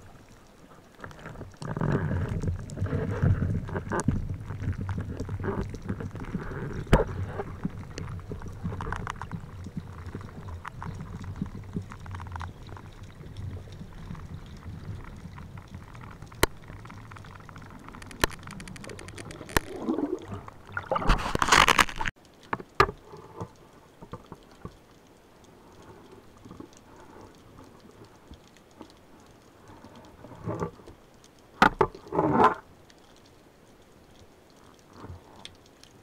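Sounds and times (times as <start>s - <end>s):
rush of water: 0.0s - 36.0s
gear clicks and knocks: 1.0s - 19.9s
low underwater rumble: 1.8s - 21.4s.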